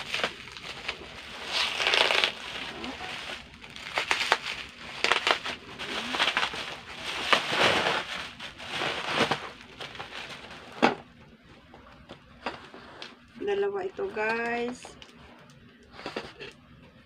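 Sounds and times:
bubble wrap crinkling: 0:00.0 - 0:11.1.

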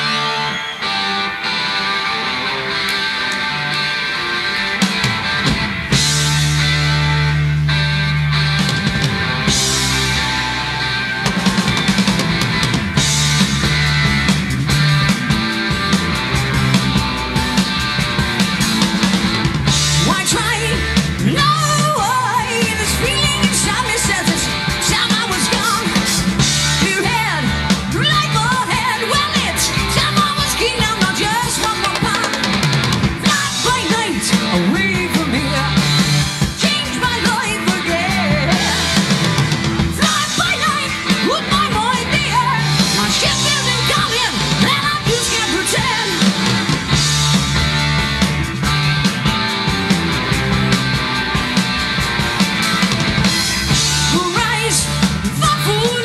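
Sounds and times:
bass guitar: 0:00.0 - 0:56.0
drums: 0:00.0 - 0:56.0
electric guitar: 0:00.0 - 0:56.0
male lead vocal: 0:33.2 - 0:39.3, 0:40.0 - 0:46.3.

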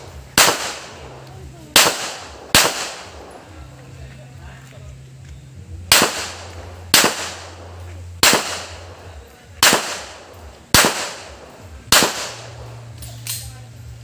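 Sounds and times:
pistol shots with echo: 0:00.0 - 0:03.5, 0:05.9 - 0:13.5.

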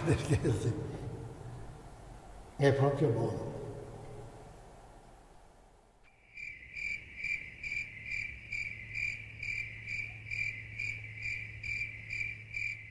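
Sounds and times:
steady low hum: 0:00.0 - 0:06.1
cricket chirping: 0:06.1 - 0:12.9.

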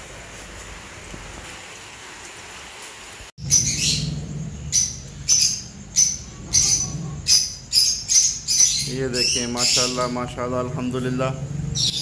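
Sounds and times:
heavy rain hissing: 0:00.0 - 0:03.3
caged birds shrill calls: 0:03.4 - 0:12.0.

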